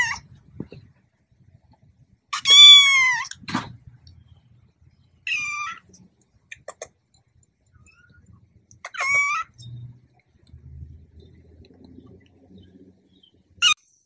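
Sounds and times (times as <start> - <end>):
kitten meowing: 2.4 - 3.5, 5.3 - 5.9.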